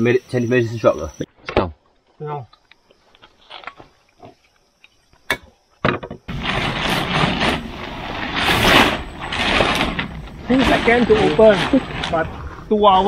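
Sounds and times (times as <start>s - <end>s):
tent nylon rustling: 6.3s - 13.0s.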